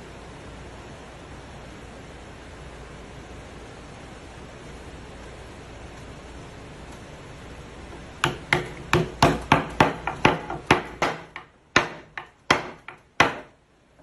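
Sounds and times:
wood chisel tapping: 8.2 - 13.6.

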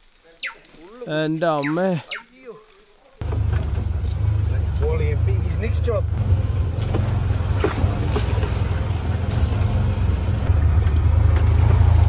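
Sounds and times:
buggy engine running: 3.2 - 12.0
branches scraping windscreen: 6.6 - 10.5.

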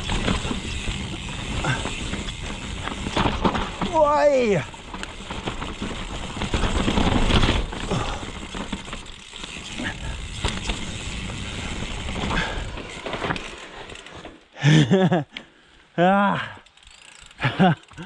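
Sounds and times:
bike clattering over bumps: 0.0 - 14.4
bike tyres rolling on dirt: 0.0 - 15.8, 16.4 - 18.0.

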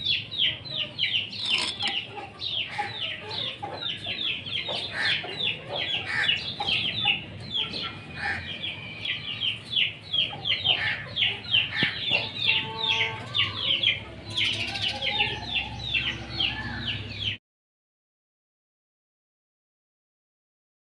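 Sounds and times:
high-pitched chick chirping: 0.0 - 17.4
chickens clucking: 0.1 - 8.8, 9.5 - 17.4.

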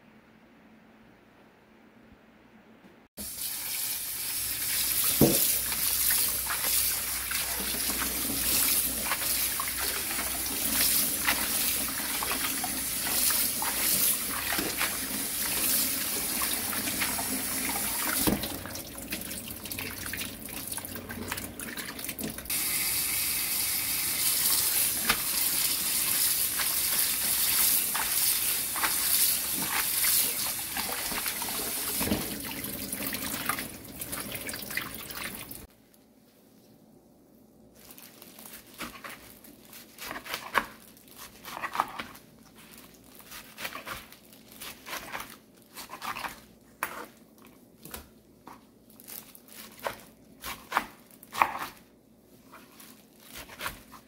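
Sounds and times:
greens rinsed in water: 3.2 - 35.7
tap water splashing into sink: 4.9 - 6.6, 16.8 - 22.5.

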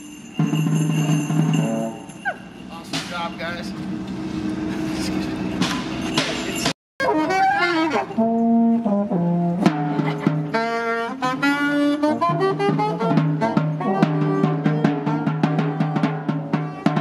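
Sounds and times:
saxophone: 7.0 - 16.1.

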